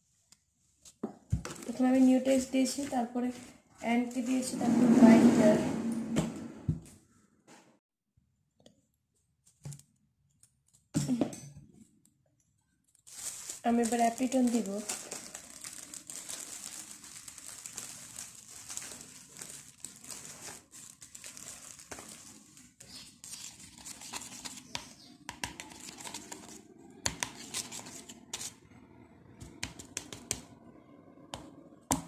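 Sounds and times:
plastic bag crinkling: 12.9 - 24.7, 25.6 - 26.6
spoon stirring thick paste: 22.8 - 28.6.

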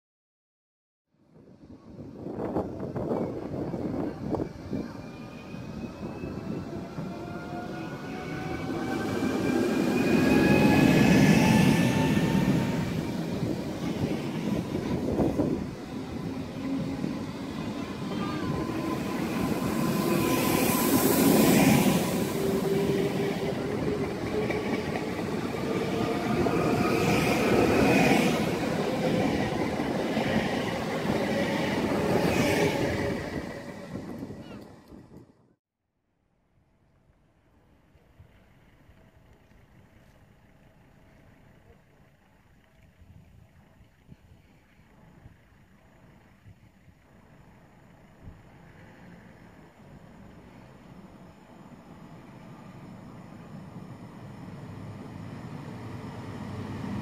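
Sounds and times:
wheel and rail noise: 2.4 - 35.5.

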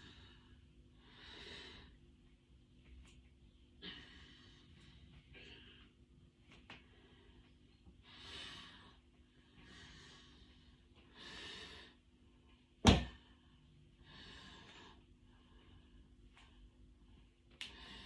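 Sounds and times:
person breathing: 0.0 - 2.0, 3.8 - 6.0, 6.9 - 12.0, 13.3 - 18.0.

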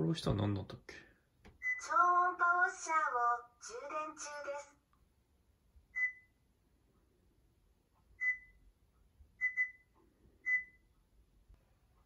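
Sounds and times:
touch panel beeps: 1.6 - 1.9, 6.0 - 6.4, 8.2 - 8.6, 9.4 - 10.9.

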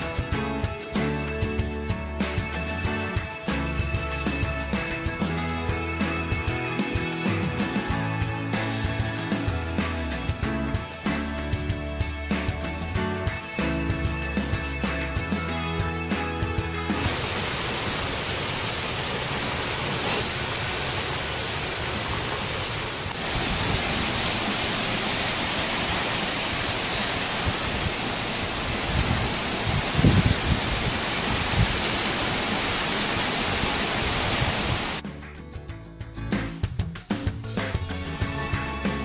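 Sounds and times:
heavy rain pouring: 0.0 - 7.9, 16.6 - 35.0.

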